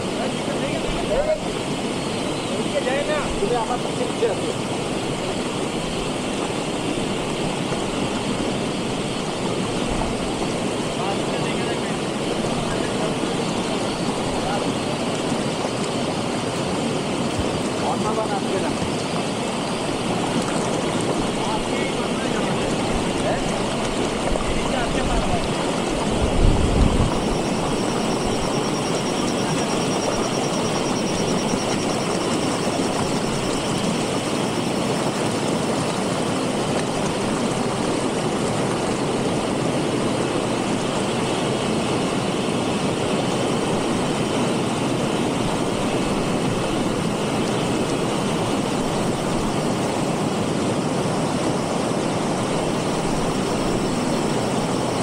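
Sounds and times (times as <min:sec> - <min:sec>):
stream rushing over stones: 0:00.0 - 0:55.0.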